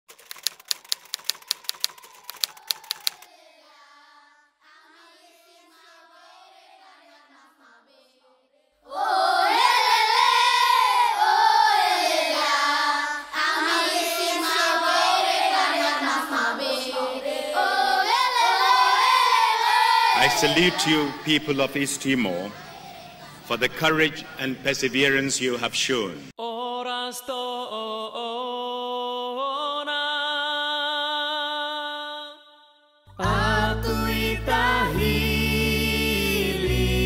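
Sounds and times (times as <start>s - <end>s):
typewriter key clicks: 0.1s - 3.2s
children singing loudly: 8.9s - 21.3s.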